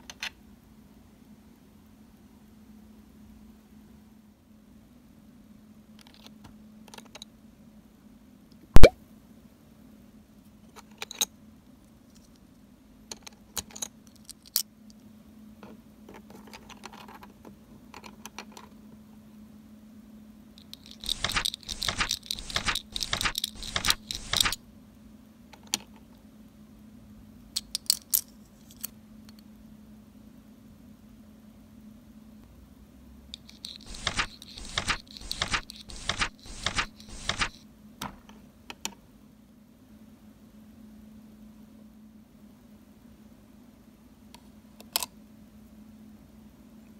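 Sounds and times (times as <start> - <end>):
plastic toy pieces clicking: 20.7 - 24.6.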